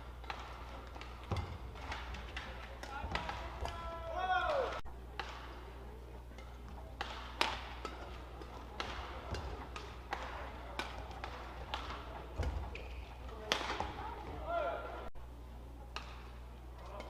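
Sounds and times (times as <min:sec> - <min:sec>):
racket striking shuttlecock: 0:00.0 - 0:03.8, 0:06.3 - 0:14.4, 0:15.9 - 0:17.0.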